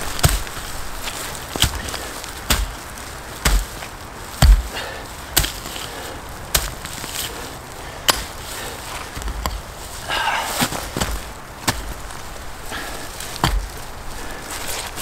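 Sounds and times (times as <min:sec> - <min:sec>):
pick chopping into soil: 0:00.1 - 0:05.9, 0:06.5 - 0:07.3, 0:08.0 - 0:08.4, 0:12.7 - 0:13.8.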